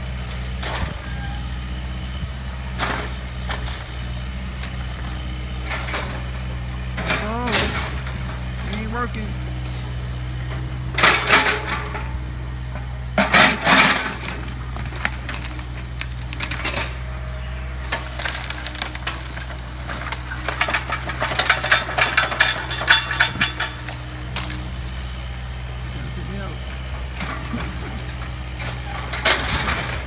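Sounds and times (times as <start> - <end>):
excavator diesel engine running: 0.0 - 30.0
rubble clattering and crunching: 13.2 - 25.0.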